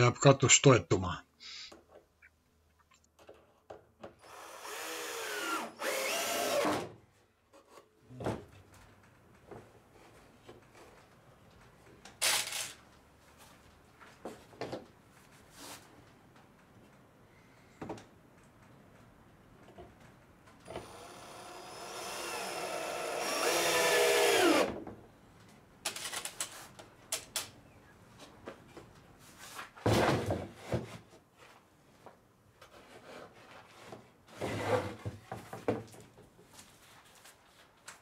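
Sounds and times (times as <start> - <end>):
cordless drill driving a screw: 4.2 - 6.8, 20.7 - 24.7.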